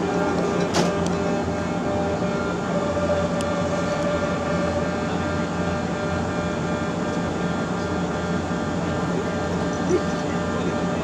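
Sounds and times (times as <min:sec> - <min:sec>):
electric train equipment humming: 0:00.0 - 0:11.0.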